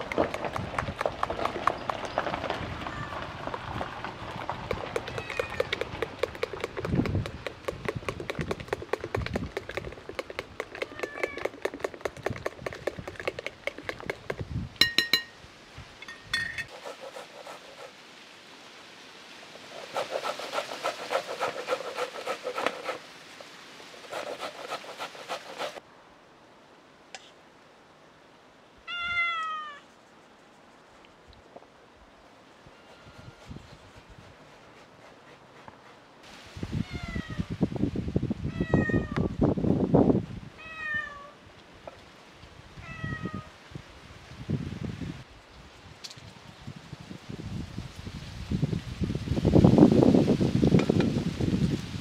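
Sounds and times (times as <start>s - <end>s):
cat meowing: 5.1s - 5.7s, 10.8s - 11.4s, 28.9s - 29.8s, 36.8s - 37.5s, 38.5s - 39.3s, 40.6s - 41.4s, 42.8s - 43.5s
onion grated on metal grater: 16.7s - 17.9s, 19.7s - 23.0s, 24.0s - 25.8s.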